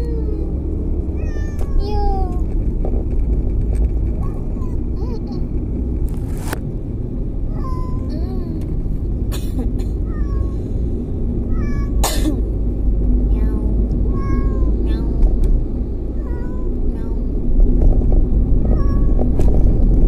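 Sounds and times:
car cabin rumble: 0.0s - 20.0s
cat meowing: 11.5s - 12.0s, 18.7s - 19.3s.

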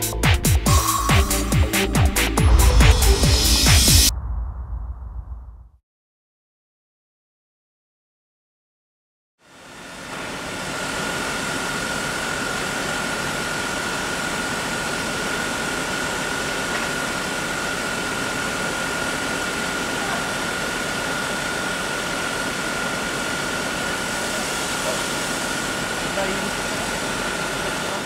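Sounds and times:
high-pitched whine: 0.7s - 5.7s
machine running with hiss: 9.5s - 28.0s.

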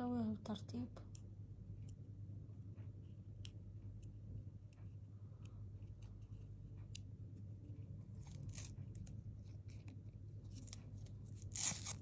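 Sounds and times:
steady low hum: 0.0s - 12.0s
foam pieces scraping and crinkling: 11.4s - 12.0s.

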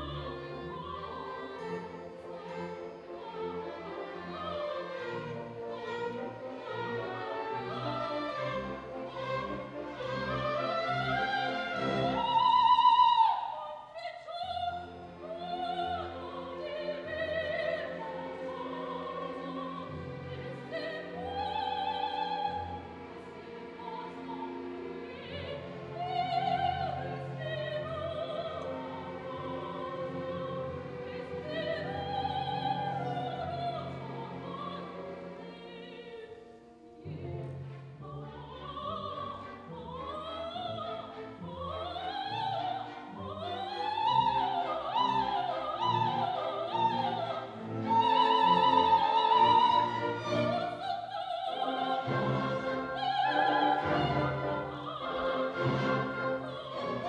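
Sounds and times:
orchestra playing slow melody: 0.0s - 12.6s, 51.7s - 57.0s.

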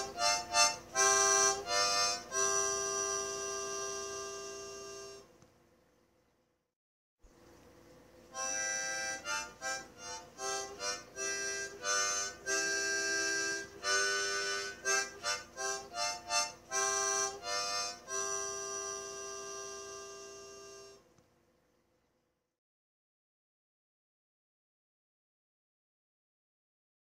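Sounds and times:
harmonica playing: 0.0s - 5.3s, 8.3s - 21.0s.

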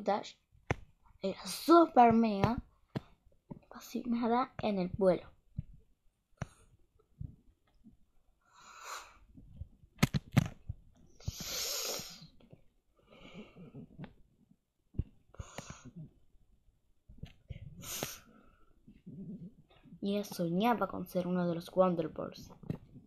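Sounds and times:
microphone handling clicks: 10.0s - 10.8s
breathy puffs of air: 11.2s - 12.3s, 17.7s - 18.7s.

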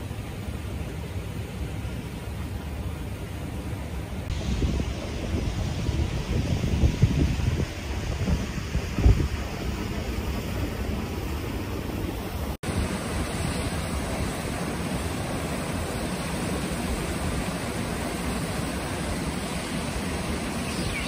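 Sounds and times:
running water: 0.0s - 21.0s
wind buffeting microphone: 4.3s - 12.8s.

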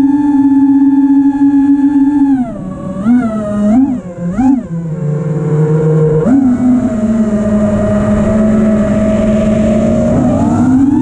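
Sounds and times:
drone motors whining: 0.0s - 11.0s
rushing air noise: 5.1s - 11.0s.

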